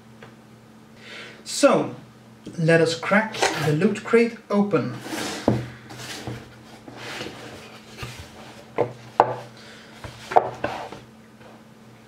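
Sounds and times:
cardboard lid scraping: 3.3 - 3.9, 4.9 - 11.1
cardboard knocking on desk: 5.4 - 6.5, 8.8 - 10.8.

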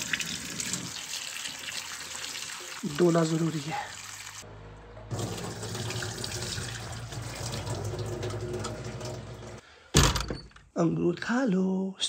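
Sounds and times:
water running from a tap: 0.0 - 4.4, 5.1 - 9.6.

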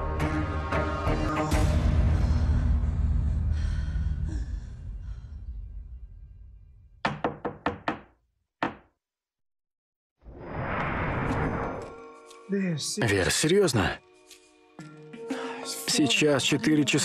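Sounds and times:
music: 0.0 - 5.4, 11.7 - 17.0
knocking on a door: 7.0 - 8.9.

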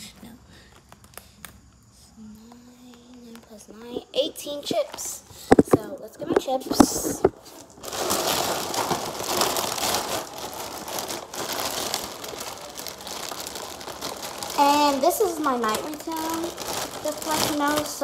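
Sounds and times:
plastic chip bags crinkling: 4.6 - 18.0.

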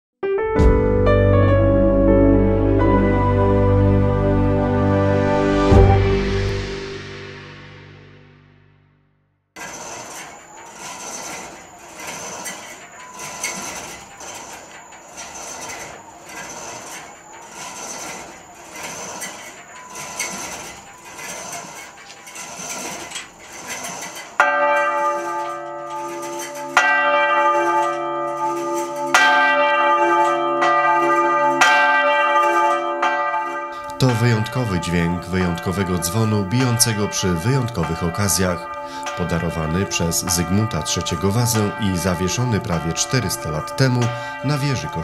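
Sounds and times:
church bell ringing: 1.1 - 8.6, 19.4 - 45.0
rhythmic clatter of swinging bell: 10.4 - 45.0.

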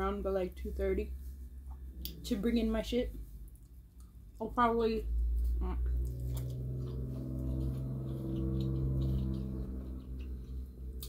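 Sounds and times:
faint chewing clicks: 3.4 - 4.4, 5.4 - 11.0.

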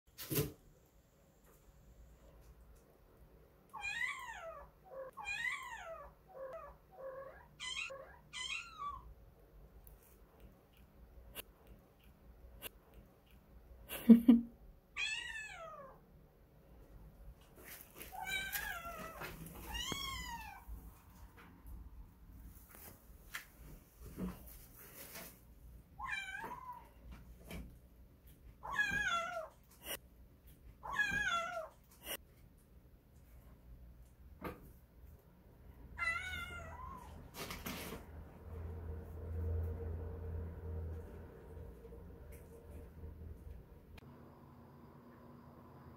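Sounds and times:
kitten meowing: 3.8 - 9.1.

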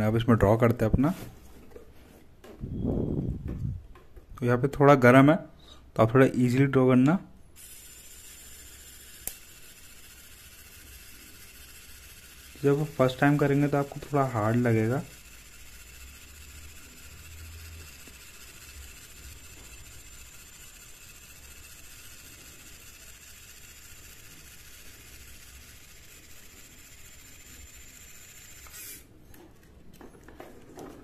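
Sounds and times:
small feed motor whirring: 7.5 - 29.2.

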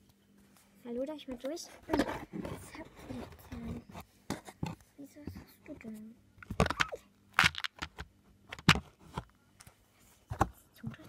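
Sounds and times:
plastic toys clicking and scraping: 6.4 - 8.8.

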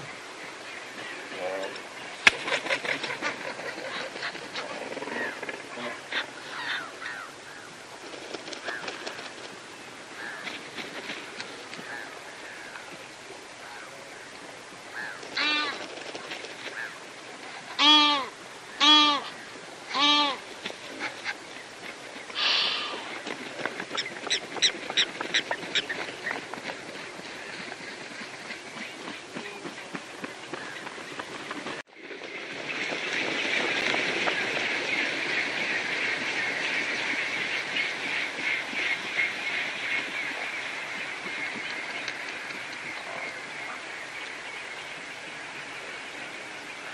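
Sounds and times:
waterbird honking: 14.9 - 15.8, 17.8 - 21.4.

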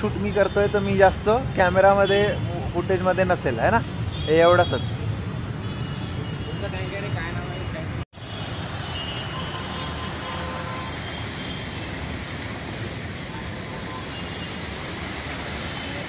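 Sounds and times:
fountain water splashing: 8.2 - 16.0.

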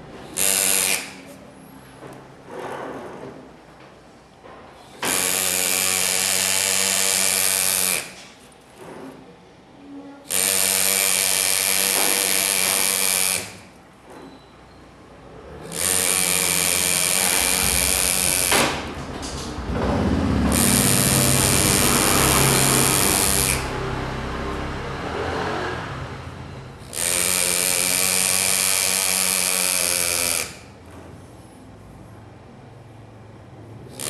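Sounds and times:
pneumatic engraver buzzing on metal: 0.2 - 1.6, 4.8 - 8.4, 10.2 - 19.6, 20.5 - 25.5, 26.7 - 30.9.

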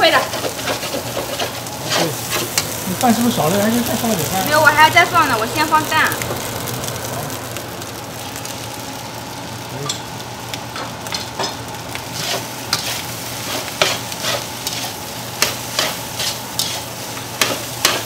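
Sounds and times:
fried rice sizzling in pan: 0.0 - 18.0
spatula scraping pan: 0.1 - 2.8, 12.1 - 18.0.

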